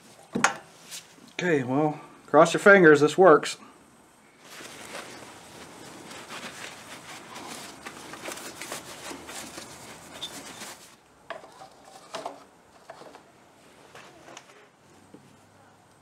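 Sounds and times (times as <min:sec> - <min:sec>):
sleeve and hands rustling: 0:04.4 - 0:11.0.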